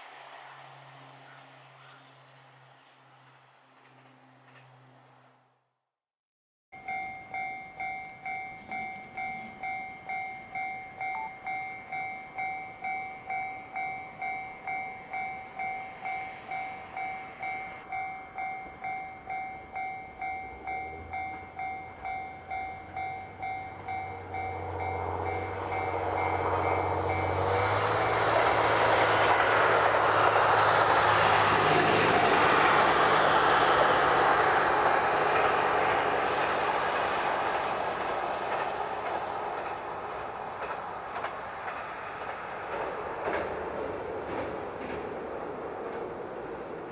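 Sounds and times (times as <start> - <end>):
diesel train engine hum: 0.0 - 5.6, 6.8 - 46.9
train passing: 0.0 - 5.7, 6.8 - 46.9
crossing warning bell ringing: 6.8 - 29.7.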